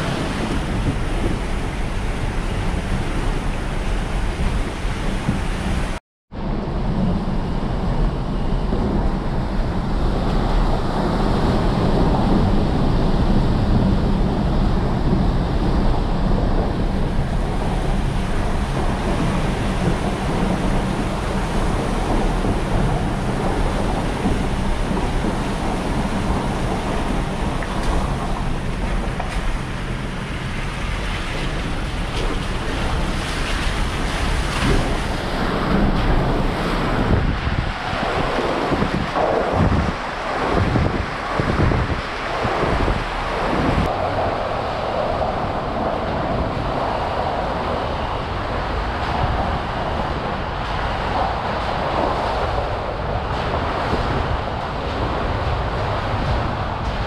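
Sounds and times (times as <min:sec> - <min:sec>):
water splashes: 0:17.8 - 0:44.8.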